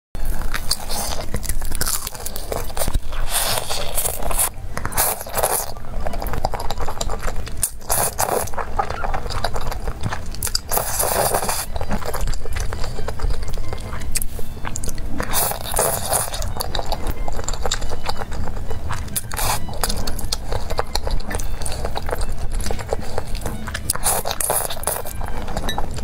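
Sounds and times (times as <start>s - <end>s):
chewing and slurping noodles: 0.2s - 26.0s
crunching bites of fried chicken: 0.5s - 26.0s.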